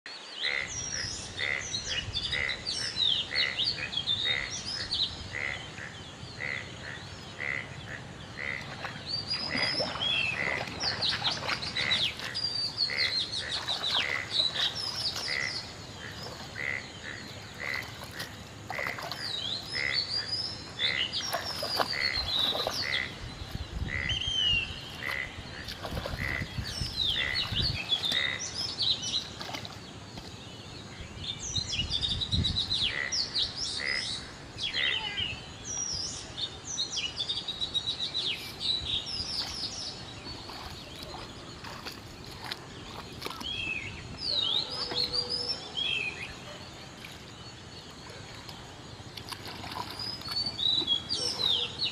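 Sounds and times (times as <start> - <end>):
frogs calling: 0.4 - 31.0, 32.7 - 35.8
birds chirping and whistling: 37.1 - 46.7, 49.9 - 51.9.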